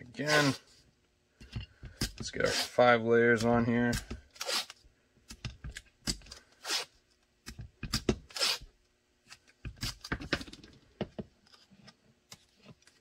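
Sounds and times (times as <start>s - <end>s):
tape ripping and crackling: 4.3s - 4.8s, 6.6s - 6.9s, 8.3s - 8.7s.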